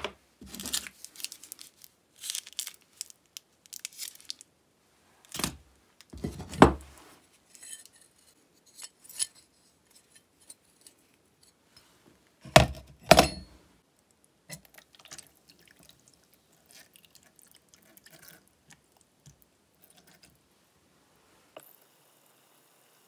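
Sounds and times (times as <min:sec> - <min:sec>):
liquid splashing and trickling: 0:14.6 - 0:19.0.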